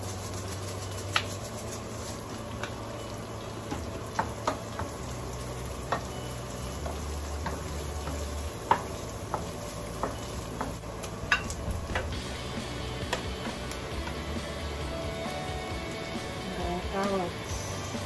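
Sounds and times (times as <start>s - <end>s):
onion sizzling in a frying pan: 0.0s - 18.0s
utensil clicking against pan: 13.0s - 14.2s.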